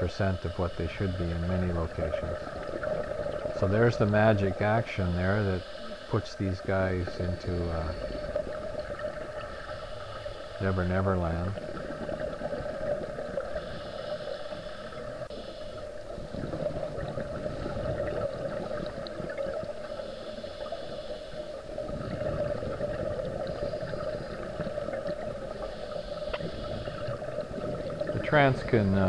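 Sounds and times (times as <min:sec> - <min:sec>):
exhaled bubbles gurgling: 0:00.0 - 0:29.0
steady hum: 0:00.0 - 0:29.0
scuba regulator breaths hissing: 0:13.5 - 0:15.8, 0:25.4 - 0:27.1.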